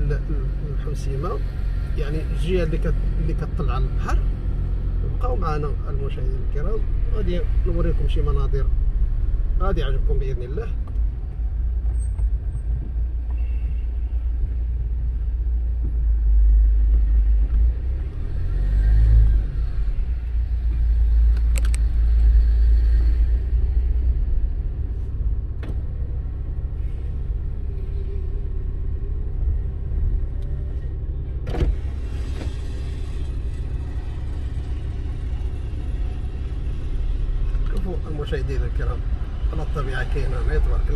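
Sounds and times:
car driving rumble: 0.0 - 40.9.

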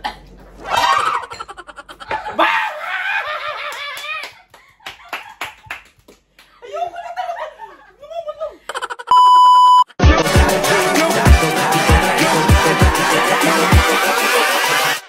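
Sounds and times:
people laughing hard: 0.8 - 5.4, 6.6 - 9.1, 10.1 - 15.0.

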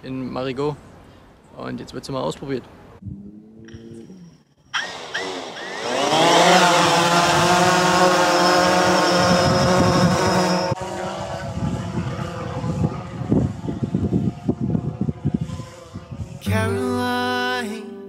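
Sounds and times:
drone propellers buzzing: 3.0 - 16.4.

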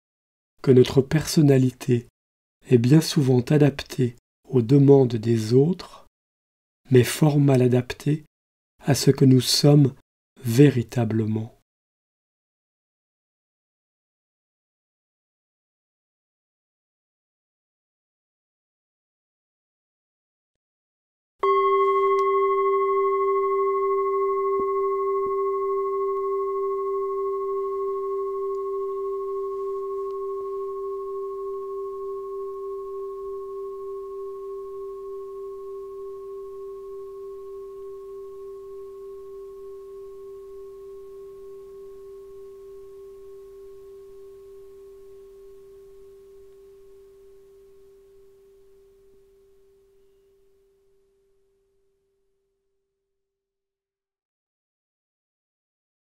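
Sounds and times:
singing bowl ringing: 21.4 - 51.2.

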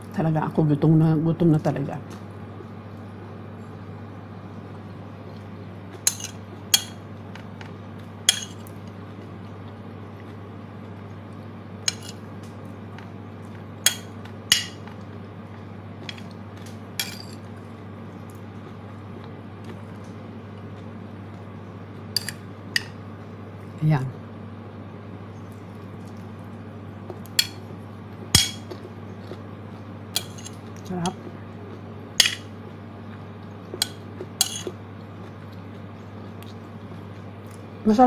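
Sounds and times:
steady low hum: 0.0 - 38.0
metal spoon scraping ceramic plate: 11.9 - 12.2, 34.4 - 34.7.

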